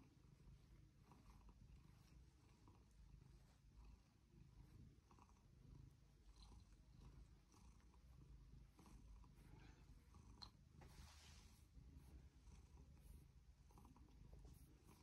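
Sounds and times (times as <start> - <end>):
cat purring: 0.0 - 15.0
brush strokes through fur: 9.2 - 15.0.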